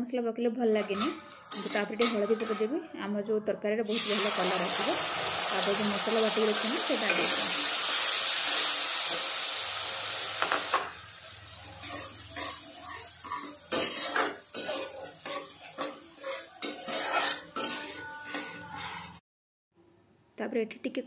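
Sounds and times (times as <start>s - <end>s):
metal spatula scraping pan: 0.7s - 3.0s, 3.9s - 9.2s, 10.4s - 19.2s
hot oil sizzling: 0.8s - 2.7s, 3.8s - 19.2s.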